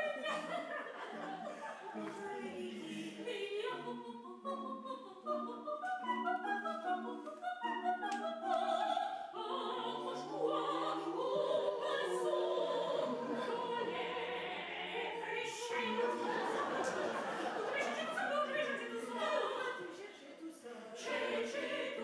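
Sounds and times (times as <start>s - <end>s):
vocal quartet singing in harmony: 0.0s - 22.0s.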